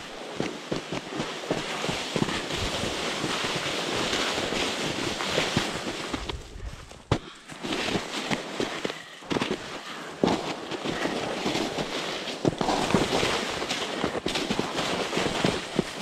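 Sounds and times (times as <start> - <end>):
sled crunching and knocking: 0.0 - 16.0
sled hissing over snow: 1.0 - 6.2, 7.7 - 16.0.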